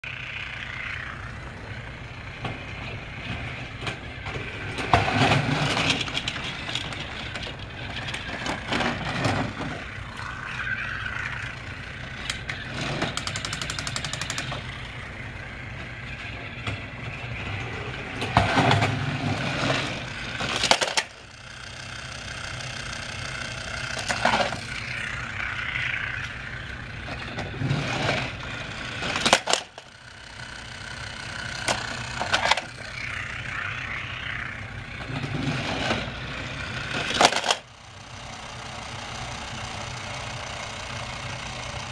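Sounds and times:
toy train motor hum: 0.0 - 41.9
rapid ticking: 9.8 - 15.6.

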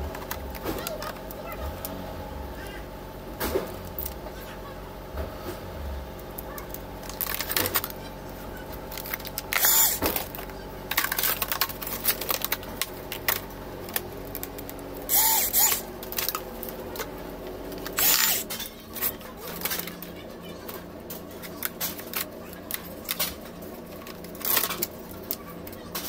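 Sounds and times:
small power tool whirring: 8.9 - 20.2.

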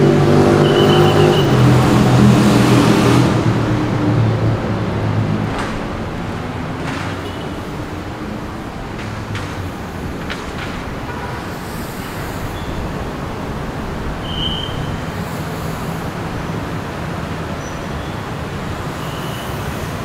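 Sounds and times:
traffic hum: 0.0 - 20.0
brief high beep: 0.6 - 1.5.

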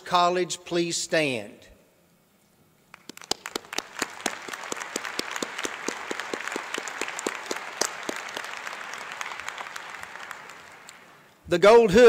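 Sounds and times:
close hand claps: 2.9 - 11.3
crowd applauding: 2.9 - 11.3.

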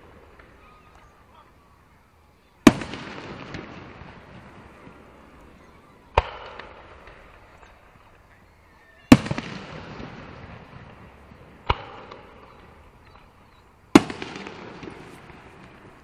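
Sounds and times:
firework shells bursting: 2.6 - 8.3, 9.1 - 16.0.

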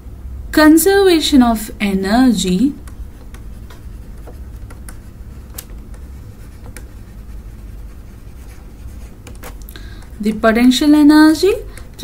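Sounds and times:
low steady hum: 0.0 - 12.0
stylus scratching on tablet screen: 2.7 - 9.5.

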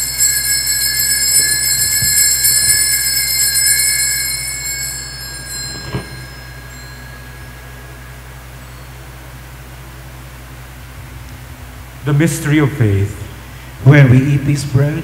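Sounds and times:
altar bell ringing: 0.0 - 10.8.

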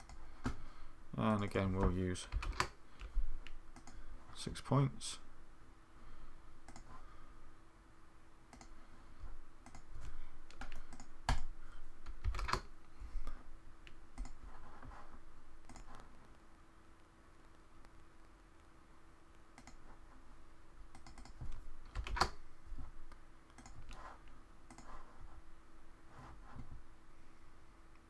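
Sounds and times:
computer keyboard clicks: 0.0 - 0.6, 2.3 - 3.1, 3.8 - 4.0, 6.7 - 6.9, 8.5 - 8.7, 10.5 - 12.7, 14.2 - 14.4, 15.6 - 16.0, 19.6 - 19.8, 20.9 - 22.4, 23.5 - 23.8
faint steady hum: 0.0 - 28.0
mouse clicks: 1.5 - 4.0, 6.6 - 6.9, 8.5 - 8.8, 9.6 - 11.5, 13.8 - 14.4, 15.6 - 16.1, 19.6 - 19.8, 20.9 - 22.4, 23.5 - 24.0, 24.7 - 25.0.

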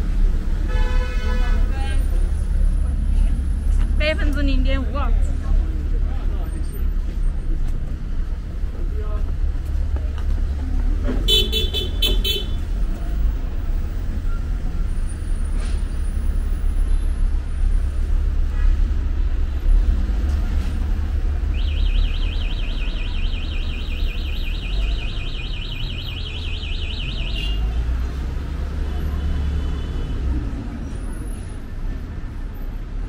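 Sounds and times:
street traffic rumbling: 0.0 - 33.0
warbling electronic alarm: 21.5 - 27.6.

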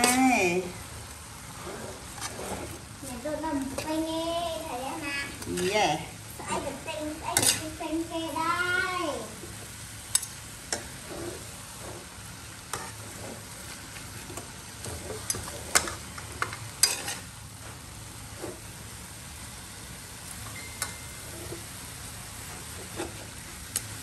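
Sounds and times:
metal spatula scraping a wok: 0.0 - 0.7, 1.4 - 4.1, 4.7 - 6.1, 7.2 - 8.2, 10.2 - 17.4, 18.2 - 18.8, 20.4 - 21.8, 22.4 - 23.4
greens sizzling in a wok: 0.0 - 24.0.

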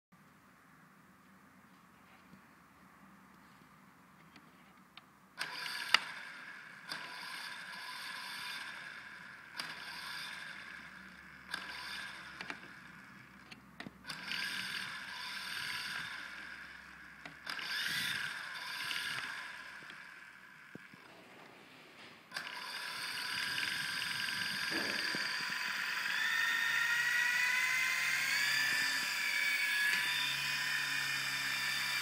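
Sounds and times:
toy helicopter motors whining: 5.4 - 21.1, 22.3 - 32.0.

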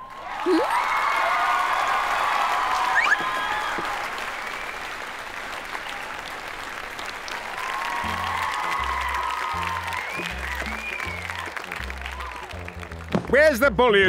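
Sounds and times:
crowd applauding: 0.0 - 14.0
background music with bass: 8.0 - 14.0.

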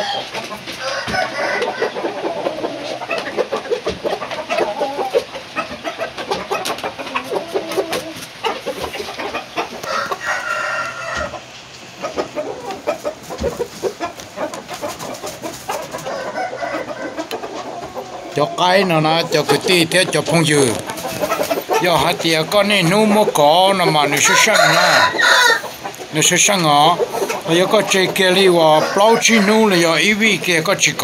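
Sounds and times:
rooster crowing: 0.0 - 2.8, 9.8 - 11.4, 16.0 - 17.2, 24.0 - 25.8, 28.6 - 30.0
roosters clucking: 0.0 - 31.0.

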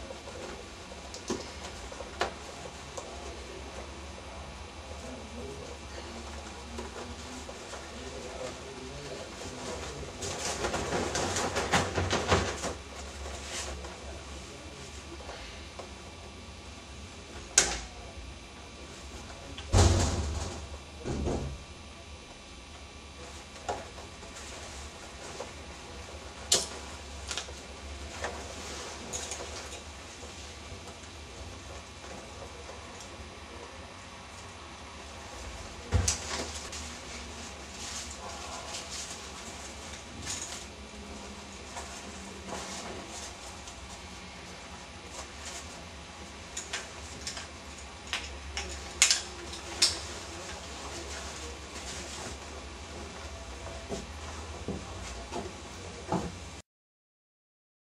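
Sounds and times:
steady low hum: 0.0 - 56.6.

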